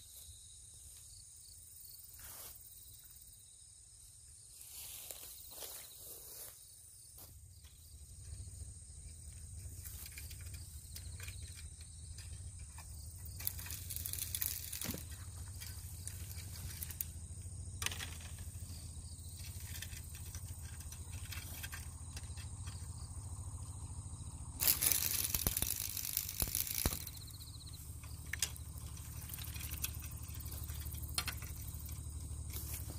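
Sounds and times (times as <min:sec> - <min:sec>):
insect chorus: 0:00.0 - 0:32.9
low steady rumble: 0:07.3 - 0:32.9.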